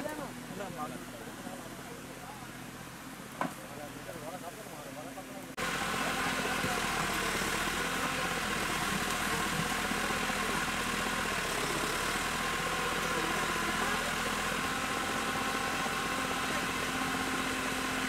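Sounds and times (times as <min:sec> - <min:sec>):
diesel engine idling: 0:00.0 - 0:18.0.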